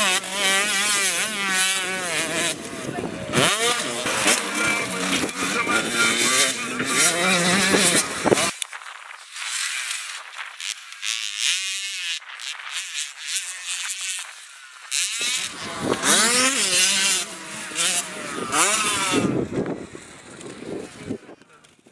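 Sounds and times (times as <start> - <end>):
motocross bikes revving: 0.0 - 8.6, 9.4 - 21.8.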